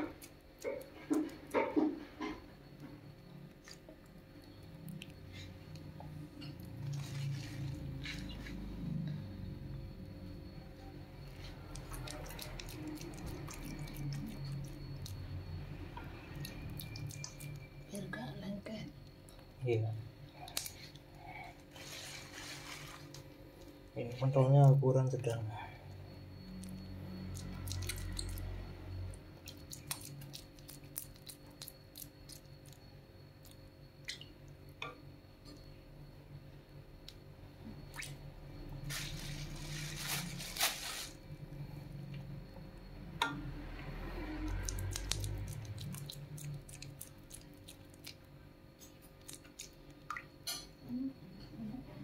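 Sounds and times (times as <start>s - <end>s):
dough squelching: 11.3s - 15.3s, 29.4s - 32.8s, 44.5s - 48.2s.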